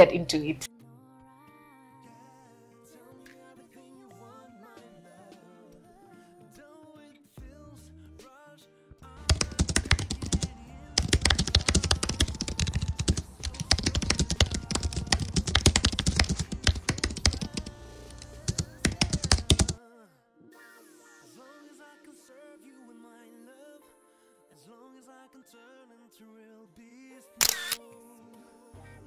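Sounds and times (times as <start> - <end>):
quiet background music: 0.0 - 29.0
computer keyboard typing: 9.2 - 19.8.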